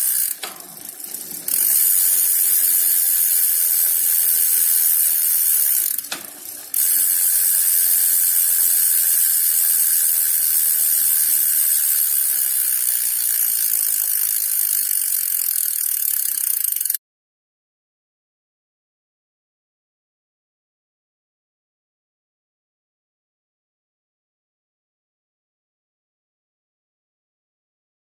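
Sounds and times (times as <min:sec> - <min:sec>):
bicycle freewheel clicking buzz: 0:00.0 - 0:17.0.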